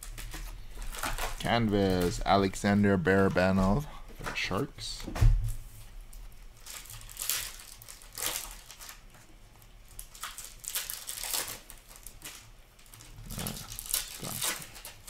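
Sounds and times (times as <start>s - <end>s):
foil wrapper crinkling: 0.0s - 3.8s, 5.8s - 15.0s
cards rustling: 0.0s - 5.0s, 10.1s - 15.0s.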